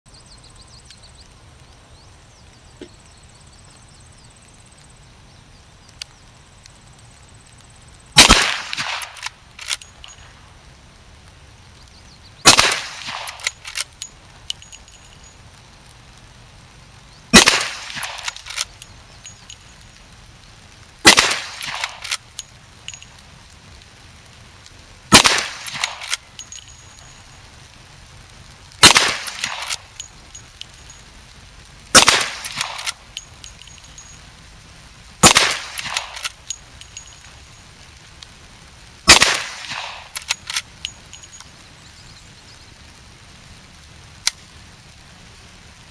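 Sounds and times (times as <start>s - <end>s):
rifle shots: 8.2s - 10.2s, 12.4s - 13.9s, 17.3s - 19.5s, 21.0s - 22.2s, 25.1s - 26.7s, 28.8s - 30.0s, 31.9s - 34.0s, 35.2s - 37.2s, 39.1s - 41.4s
metallic clicks of rifle lever: 8.2s - 10.3s, 13.0s - 15.3s, 17.9s - 19.8s, 21.6s - 23.1s, 25.2s - 27.2s, 29.2s - 31.0s, 32.0s - 34.2s, 35.3s - 37.4s, 39.6s - 41.5s.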